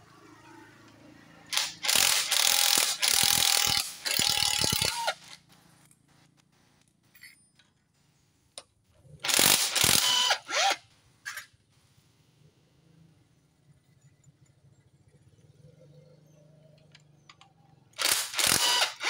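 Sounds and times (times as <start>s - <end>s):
ratchet wrench clicking: 1.5s - 5.4s, 9.2s - 11.5s, 18.0s - 19.0s.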